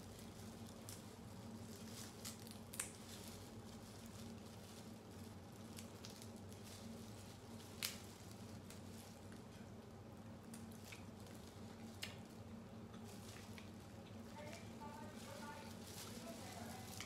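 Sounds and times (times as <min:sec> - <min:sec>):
low steady hum: 0:00.0 - 0:17.0
crab shells cracking: 0:02.1 - 0:03.5, 0:07.5 - 0:09.3.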